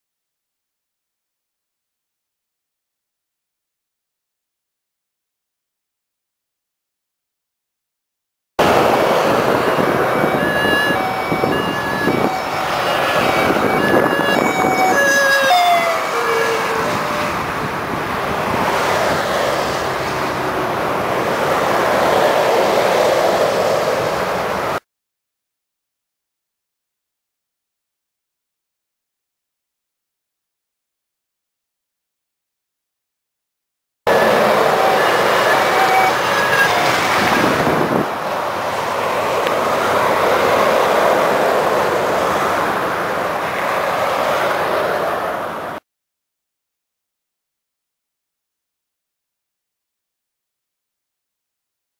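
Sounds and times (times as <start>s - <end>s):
two-tone emergency siren: 8.6s - 17.6s, 34.1s - 38.1s
lorry passing close: 8.6s - 24.8s, 34.1s - 45.7s
motorway traffic noise: 8.6s - 24.8s, 34.1s - 45.8s.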